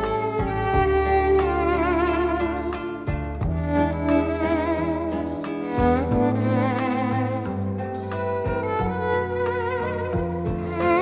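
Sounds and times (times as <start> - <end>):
steady low bass: 0.0 - 5.2.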